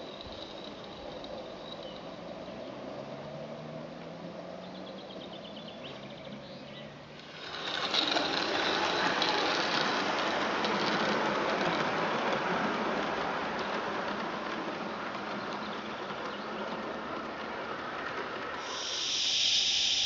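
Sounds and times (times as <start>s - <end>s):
model steam locomotive exhaust beats: 0.0s - 2.4s, 7.2s - 20.0s
wheel clatter on track: 0.0s - 20.0s.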